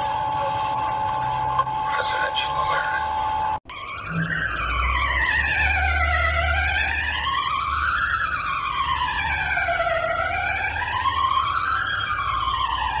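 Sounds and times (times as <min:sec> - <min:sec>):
low hum: 0:00.0 - 0:06.3
warning siren wailing: 0:00.0 - 0:13.0.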